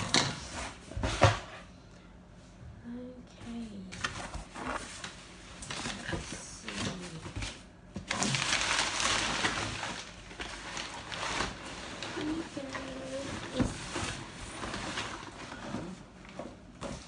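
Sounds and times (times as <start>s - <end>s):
packing paper rustling: 4.0s - 16.0s.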